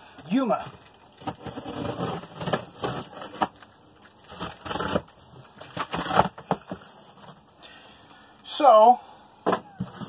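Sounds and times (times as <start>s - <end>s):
cardboard crackling and scraping: 0.2s - 7.5s, 9.8s - 10.0s.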